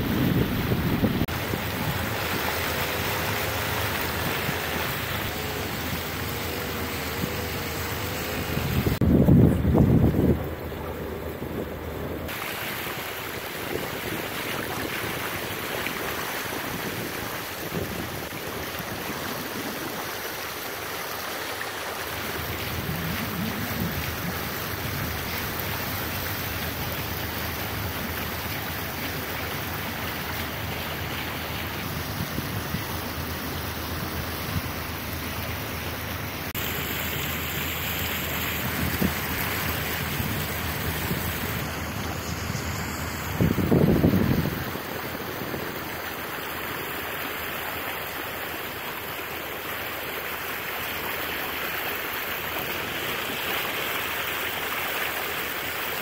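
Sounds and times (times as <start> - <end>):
wind on microphone: 0.0 - 20.4, 22.3 - 34.9, 37.9 - 46.2
water rushing past boat bow: 0.0 - 56.0.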